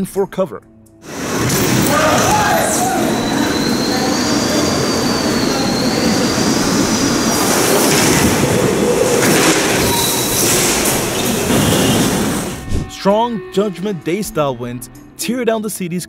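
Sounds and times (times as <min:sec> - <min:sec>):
strong wind rushing against doors: 0:01.1 - 0:12.9
thin high wind whistle: 0:01.1 - 0:13.0.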